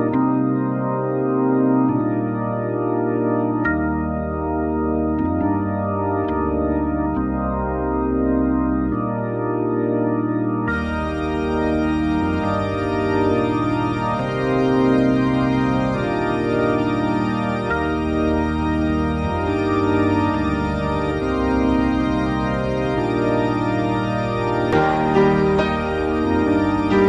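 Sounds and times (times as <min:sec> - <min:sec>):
organ chords with bass line: 0:00.0 - 0:27.0.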